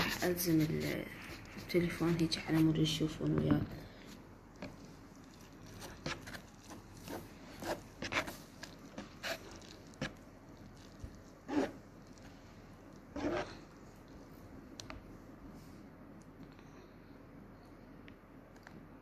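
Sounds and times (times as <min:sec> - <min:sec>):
wet noodle sounds: 0:03.8 - 0:14.2.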